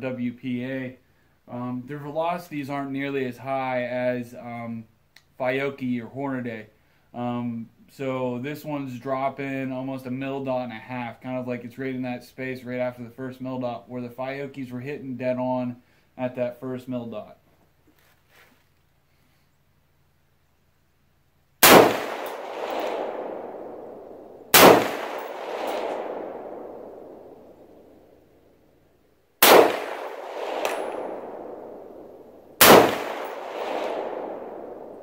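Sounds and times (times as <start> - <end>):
rifle shots with echo: 21.6 - 28.0, 29.4 - 35.0.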